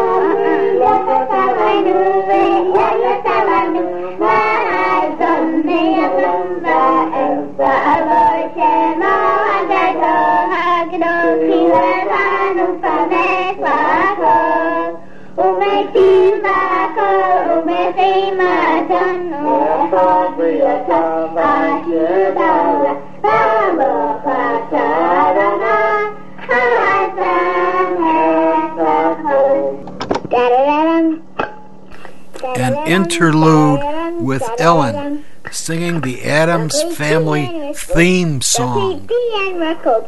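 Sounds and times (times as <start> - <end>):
child singing: 32.4 - 35.2, 35.9 - 40.0.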